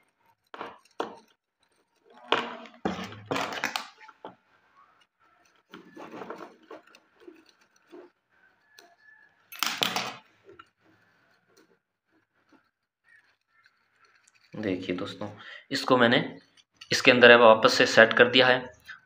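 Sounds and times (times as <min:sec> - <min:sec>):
heater element scraping and clinking: 0:00.0 - 0:19.0
small ticks: 0:04.7 - 0:09.5, 0:10.4 - 0:15.0.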